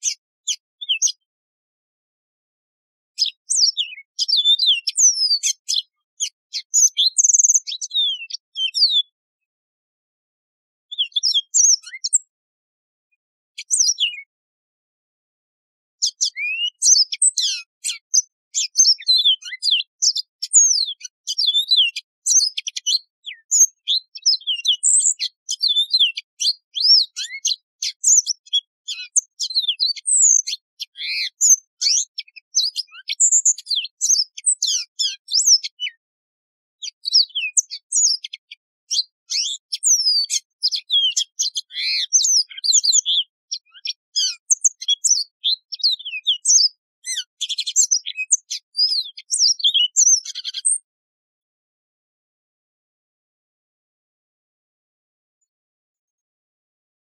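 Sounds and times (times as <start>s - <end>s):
canary singing: 0.0s - 1.2s, 3.2s - 9.2s, 10.9s - 12.3s, 13.6s - 14.3s, 16.0s - 36.0s, 36.8s - 50.9s.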